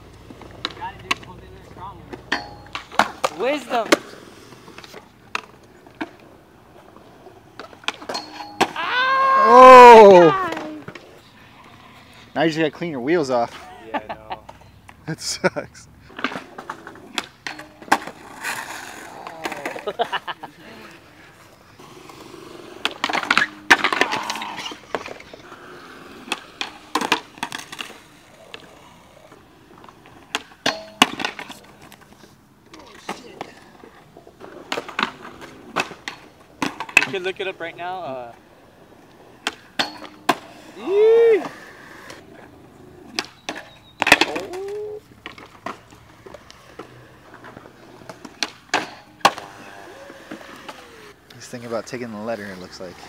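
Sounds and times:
skateboard wheels rolling: 0.0 - 53.0
skateboards clattering on concrete: 0.0 - 53.0.

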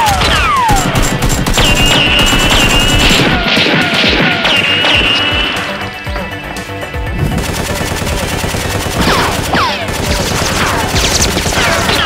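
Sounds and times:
rapid automatic gunfire: 0.0 - 4.8, 7.3 - 12.0.

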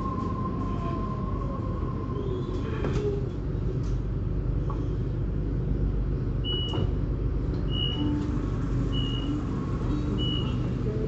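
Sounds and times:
steady low rumble: 0.0 - 11.0
vehicle warning beeper: 8.9 - 9.4, 10.2 - 10.6.

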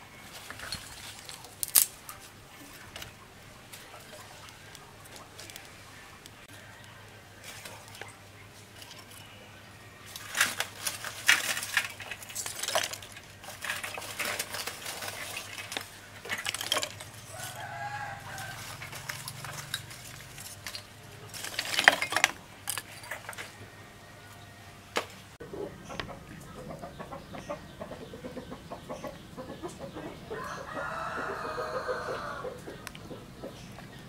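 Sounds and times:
charcoal lumps clinking: 0.2 - 9.4, 10.0 - 23.6.

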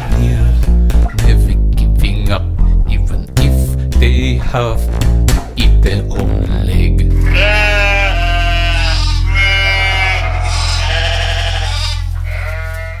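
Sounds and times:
low bass note: 0.0 - 12.6
sheep bleating: 7.2 - 13.0.

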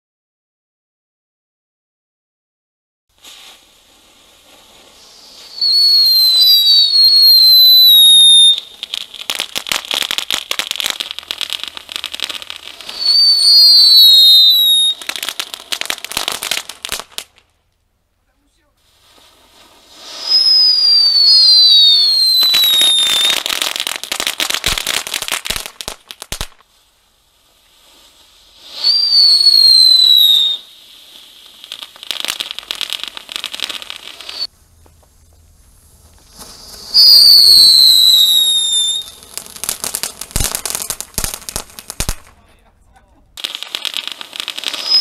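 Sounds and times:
firework crackling: 3.1 - 45.0
firework whistle falling in pitch: 5.3 - 8.7, 12.8 - 15.1, 20.0 - 23.5, 28.7 - 30.8, 33.5 - 34.5, 36.3 - 39.2, 44.5 - 45.0.

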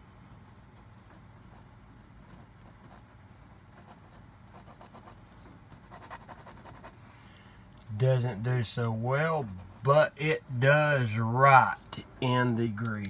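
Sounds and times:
pen scratching on paper: 0.4 - 3.2, 3.8 - 7.0, 9.4 - 9.9.

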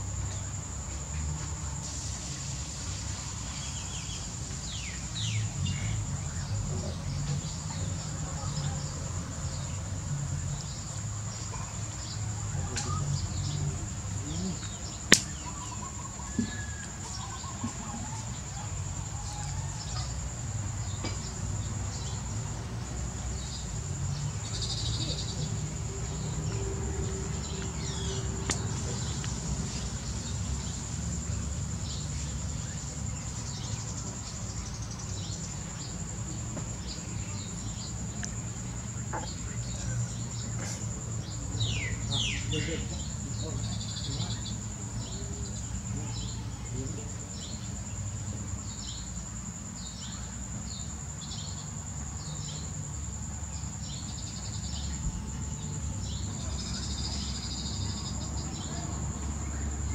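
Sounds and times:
insect drone: 0.0 - 59.9
sharp click: 15.1 - 15.4.

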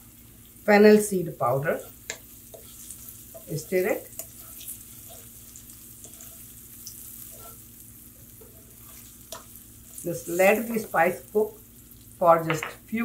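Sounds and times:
spices sizzling in oil: 0.0 - 13.0
wooden spoon scraping a pan: 1.4 - 11.0.

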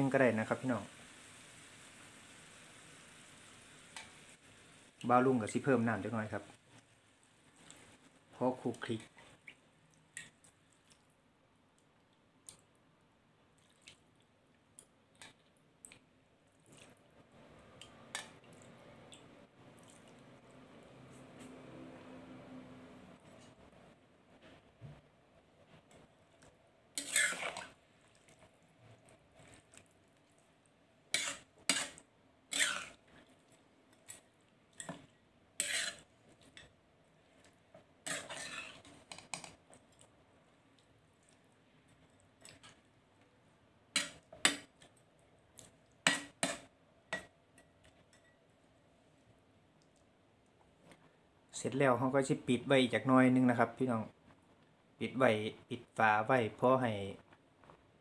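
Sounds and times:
water dripping: 17.8 - 20.6
metal spoon scraping a metal wok: 27.0 - 27.8, 31.1 - 33.0, 35.6 - 36.1, 38.0 - 39.5.

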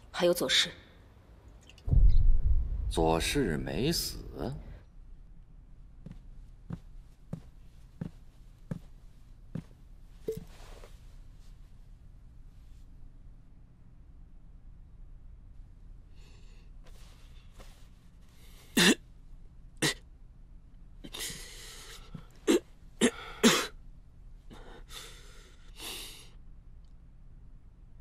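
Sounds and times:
man coughing: 18.8 - 19.0, 22.4 - 23.8.

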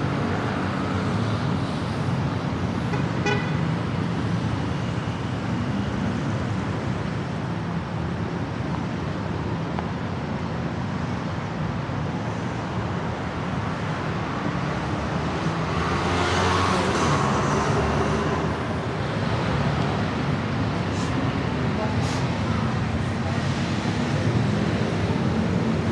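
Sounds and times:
road traffic passing: 0.0 - 25.9
loud vehicle passing: 14.8 - 25.9.

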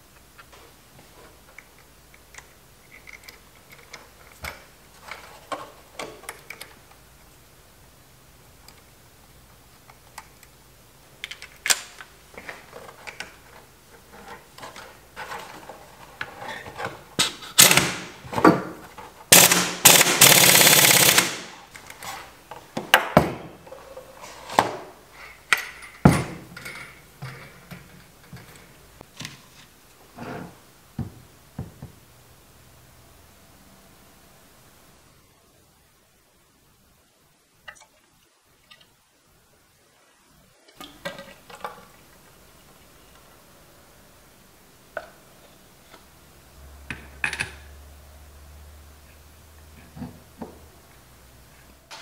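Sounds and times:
impact driver hammering: 19.4 - 21.4.

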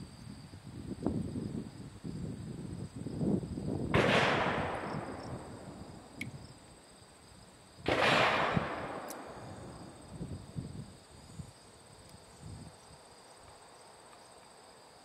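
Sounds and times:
gunshots with rolling echo: 3.9 - 6.2, 7.9 - 10.0.

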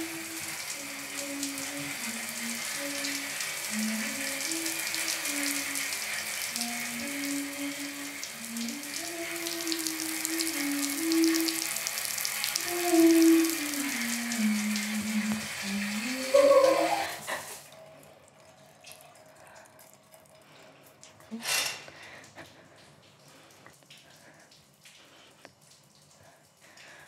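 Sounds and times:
running water hiss: 0.0 - 17.9, 20.4 - 27.0
slow low tune: 6.5 - 16.9.

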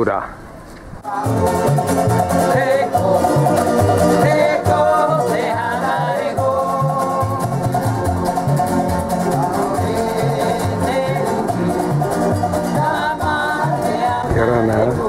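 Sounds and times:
acoustic guitar: 0.5 - 15.0
man singing: 1.0 - 7.8, 9.1 - 15.0
strummed ukuleles: 1.0 - 15.0.

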